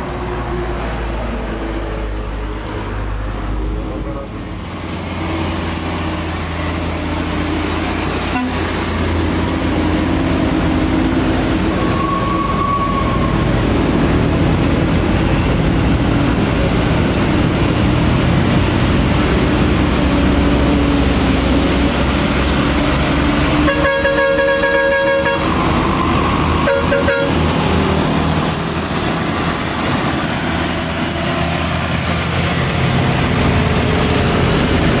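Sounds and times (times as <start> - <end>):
diesel engines rumbling under load: 0.0 - 35.0
vehicle horn: 8.3 - 8.8, 23.5 - 25.6, 26.6 - 27.4.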